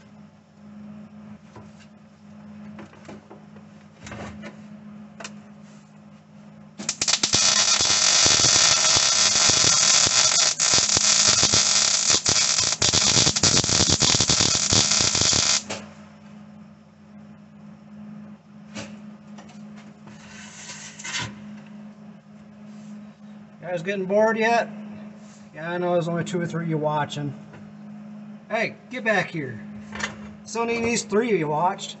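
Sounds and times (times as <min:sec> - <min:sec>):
welding arc crackling: 0:06.8 - 0:15.8, 0:20.4 - 0:21.2.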